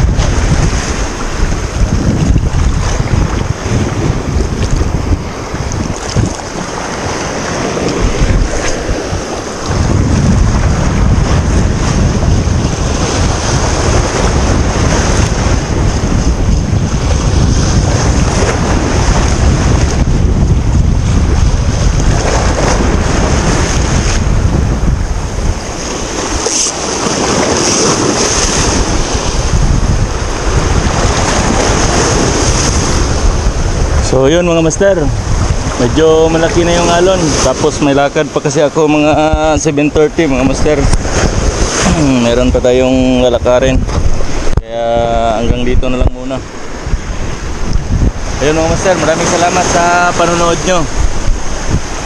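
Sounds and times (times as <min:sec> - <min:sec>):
waves washing over rocks: 0:00.0 - 0:52.0
wind buffeting microphone: 0:00.0 - 0:52.0.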